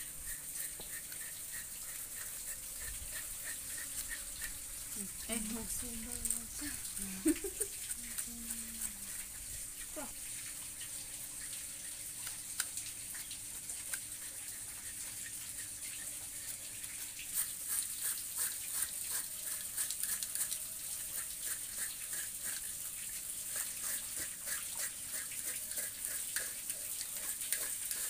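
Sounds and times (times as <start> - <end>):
knife scraping skin: 0.0 - 10.2, 13.8 - 22.8, 23.5 - 28.0
steady high hiss: 0.0 - 11.6.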